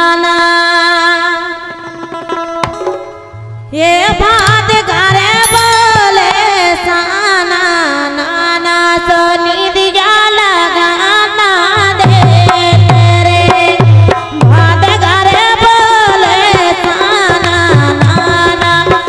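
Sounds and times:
woman singing: 0:00.0 - 0:01.8, 0:03.7 - 0:19.0
harmonium chords: 0:03.2 - 0:08.2.

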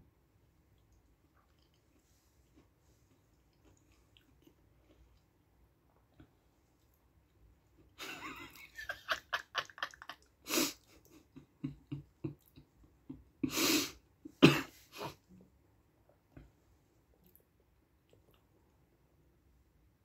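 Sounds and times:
person laughing under breath: 0:08.0 - 0:12.5.

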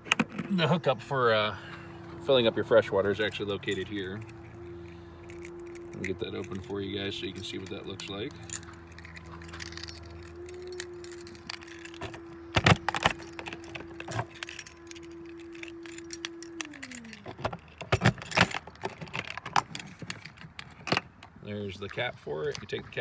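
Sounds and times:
steady hum falling in pitch: 0:01.4 - 0:18.7
keys jangling: 0:03.1 - 0:21.3
key going into lock: 0:05.2 - 0:21.2.

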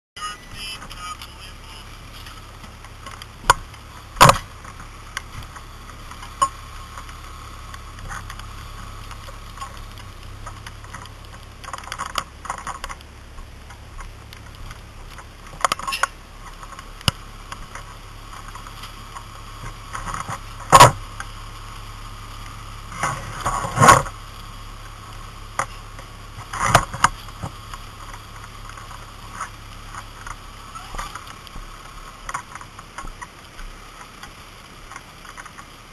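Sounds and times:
steady low hum: 0:00.2 - 0:35.9
sharp knocks and pops: 0:02.6 - 0:21.3, 0:25.5 - 0:34.3.

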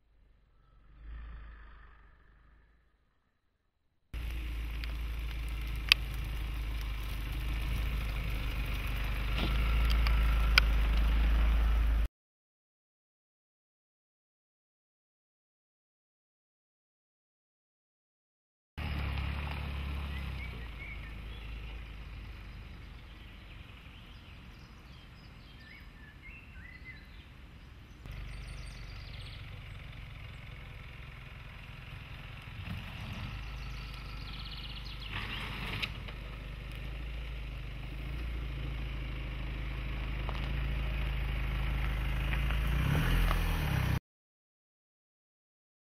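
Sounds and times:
diesel engine low rumble: 0:04.1 - 0:12.1, 0:18.8 - 0:44.0
birds chirping: 0:18.8 - 0:36.2.

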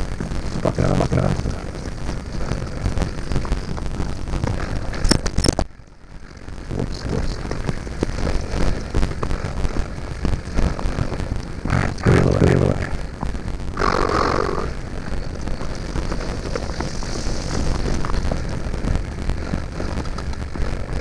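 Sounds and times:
tyres crunching over gravel: 0:00.0 - 0:21.0
wind rumble: 0:00.0 - 0:21.0
bike rattling and knocking: 0:14.8 - 0:21.0.

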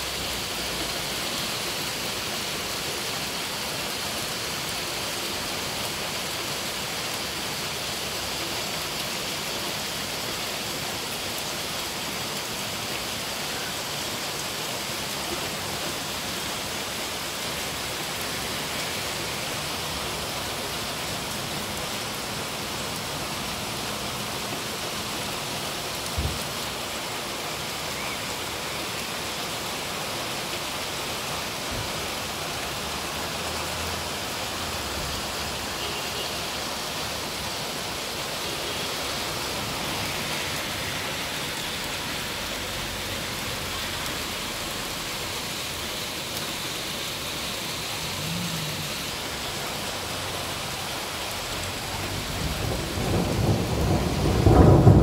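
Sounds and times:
heavy rain and hail: 0:00.0 - 0:55.0
thunder rumbling: 0:52.0 - 0:55.0.

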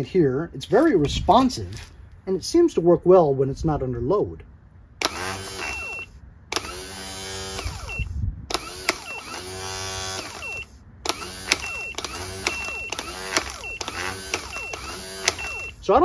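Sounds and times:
starter motor whine: 0:05.0 - 0:15.9
sharp clicks: 0:07.6 - 0:09.4, 0:10.1 - 0:15.8.

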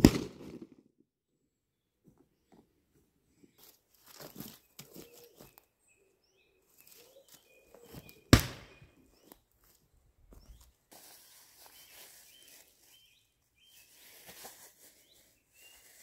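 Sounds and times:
crunching in twig litter: 0:03.5 - 0:05.7, 0:06.6 - 0:16.0.

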